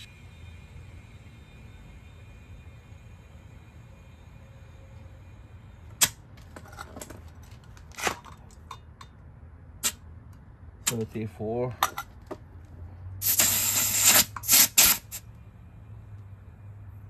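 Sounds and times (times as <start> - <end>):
compressed air hissing: 13.2 - 15.2.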